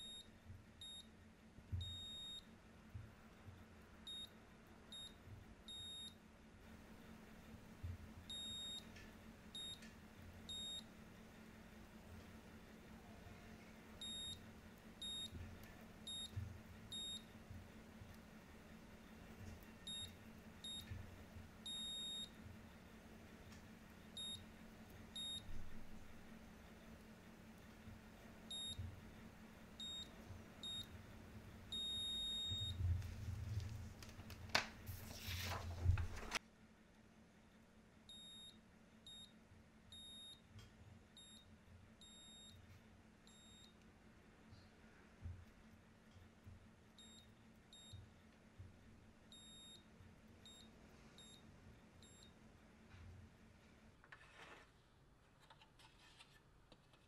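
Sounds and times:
continuity tester beeps: 0.0 - 1.1, 1.8 - 2.5, 4.1 - 6.2, 8.3 - 8.9, 9.6 - 9.9, 10.5 - 10.9, 14.0 - 14.4, 15.0 - 15.4, 16.0 - 17.4, 19.8 - 21.0, 21.6 - 22.4, 24.2 - 24.5, 25.2 - 25.6, 28.5 - 28.9, 29.8 - 31.0, 31.7 - 32.9, 38.1 - 40.5, 41.2 - 42.6, 43.3 - 43.8, 47.0 - 48.0, 49.3 - 51.4, 52.0 - 52.4.

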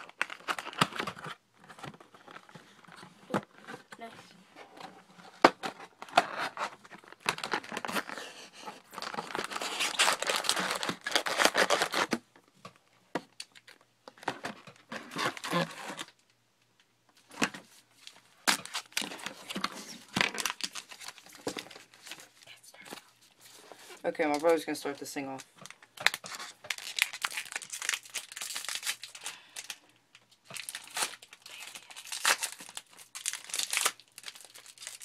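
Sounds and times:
foil packs crinkling and tearing: 0.0 - 1.4, 6.0 - 12.2, 14.8 - 16.1, 18.4 - 22.6, 24.2 - 29.8, 30.4 - 35.0.

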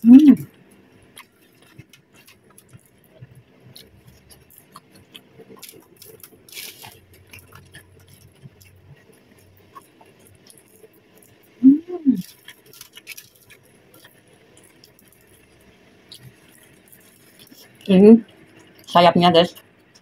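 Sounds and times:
soft chewing: 0.4 - 18.9
aluminium foil crinkling: 3.7 - 11.4, 12.2 - 15.4, 16.2 - 17.9.

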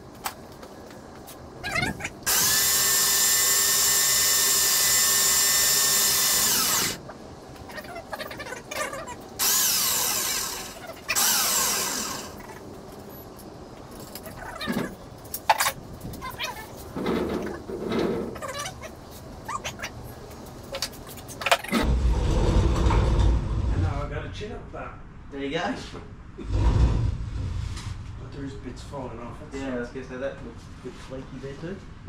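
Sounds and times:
hoist motor whining: 1.7 - 7.1, 9.3 - 12.7.

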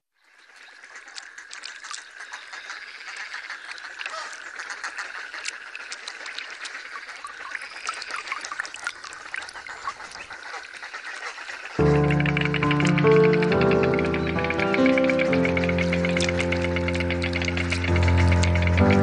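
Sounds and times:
wetland birds quacking and chattering: 9.4 - 19.0.

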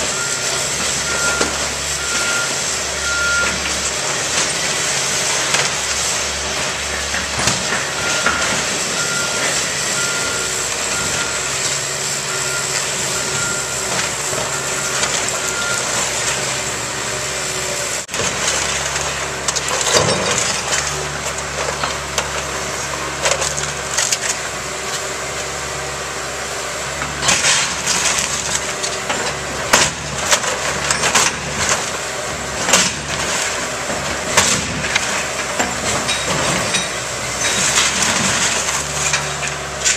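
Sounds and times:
excavator diesel engine running: 0.0 - 39.9
backup alarm beeping: 8.0 - 11.6, 12.2 - 16.0.

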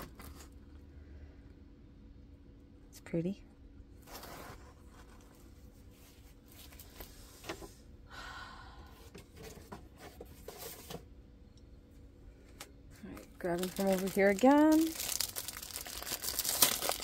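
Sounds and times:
plastic cover crinkling: 13.0 - 17.0.

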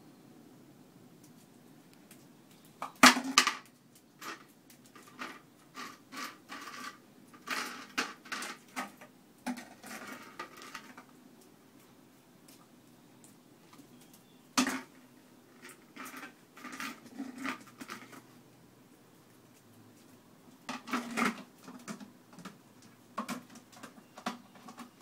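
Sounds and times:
plastic lid clattering on concrete: 2.8 - 4.4, 5.0 - 11.0, 14.6 - 15.0, 20.7 - 22.6, 23.2 - 25.0.

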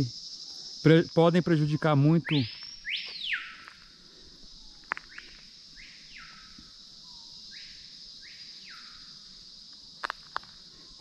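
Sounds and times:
high insect hum: 0.0 - 11.0
bird whistling calls: 2.2 - 3.7, 5.1 - 9.0.

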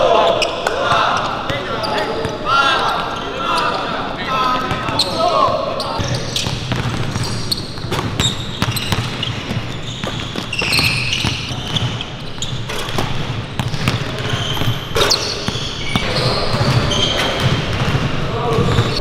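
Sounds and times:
sneaker squeaks: 0.0 - 19.0
basketballs bouncing on hardwood: 6.0 - 19.0.

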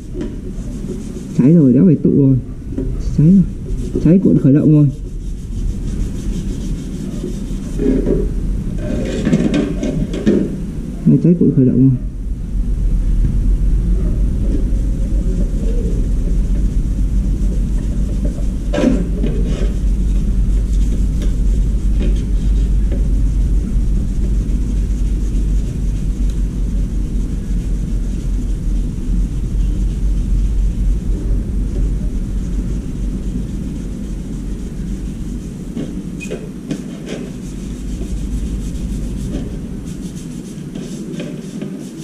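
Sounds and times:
steady low rumble: 0.0 - 42.0.

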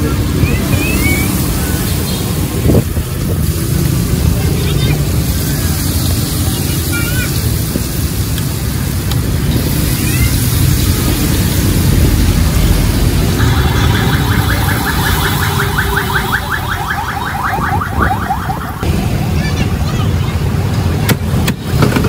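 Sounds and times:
road traffic rumble: 0.0 - 22.0
vehicle alarm warbling: 13.0 - 18.8.

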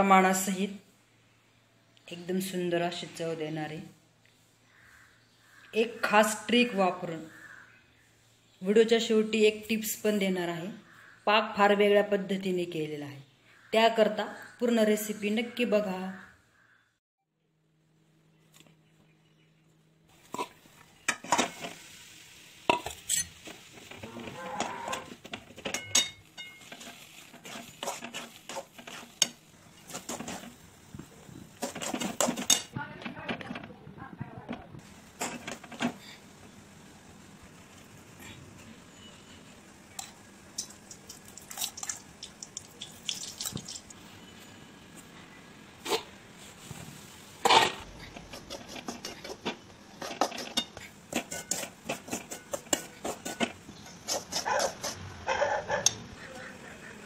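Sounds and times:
metal spatula scraping a pan: 20.2 - 22.0, 22.7 - 30.6, 31.6 - 32.8, 47.4 - 55.0
utensil clatter: 22.7 - 30.6, 31.6 - 36.1, 47.4 - 55.0.

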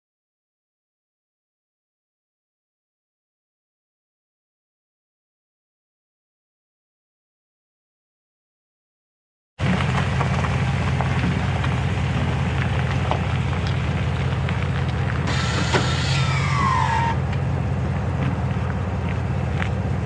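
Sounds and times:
pickup truck engine idling: 9.6 - 20.0.

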